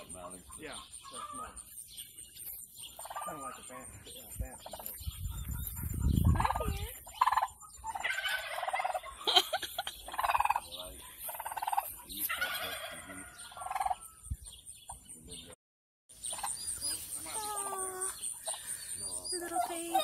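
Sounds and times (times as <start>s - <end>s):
turkey gobbling: 0.2s - 1.6s, 2.9s - 3.6s, 4.6s - 14.2s, 16.3s - 17.4s.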